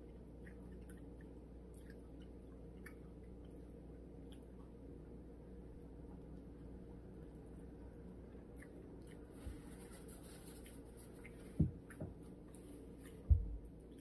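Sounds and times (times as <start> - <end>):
soft low thumps: 13.2 - 13.7.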